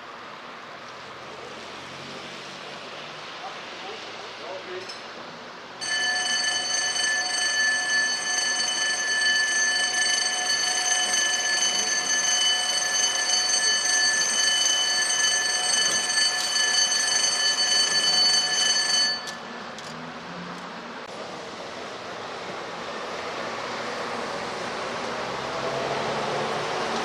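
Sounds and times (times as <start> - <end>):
electric bell ringing: 5.8 - 19.5.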